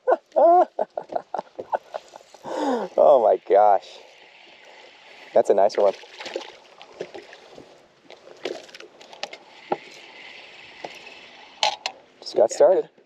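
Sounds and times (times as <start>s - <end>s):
water lapping and splashing: 0.9s - 12.2s.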